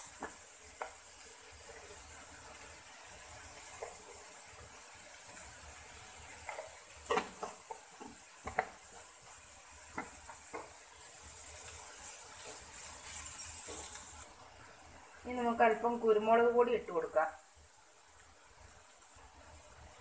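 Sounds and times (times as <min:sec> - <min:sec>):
onions sizzling: 0:00.0 - 0:20.0
spatula scraping pan: 0:06.2 - 0:14.2.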